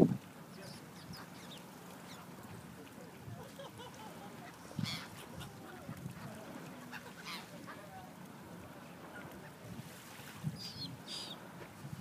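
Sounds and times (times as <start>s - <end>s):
seagulls calling: 3.8s - 8.0s, 10.6s - 11.5s.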